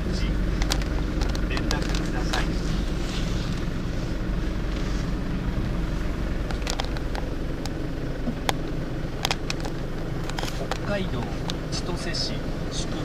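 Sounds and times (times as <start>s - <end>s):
car engine and road noise: 0.0s - 13.0s
sharp clicks: 0.6s - 2.5s.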